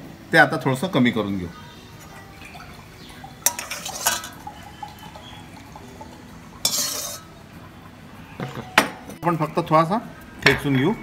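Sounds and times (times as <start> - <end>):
ladle clinking against metal pan: 2.0 - 7.4.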